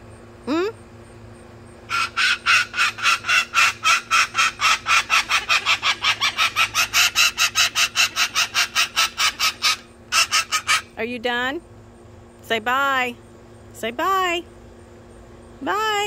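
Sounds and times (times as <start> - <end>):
cockatoo squawking: 1.9 - 11.0.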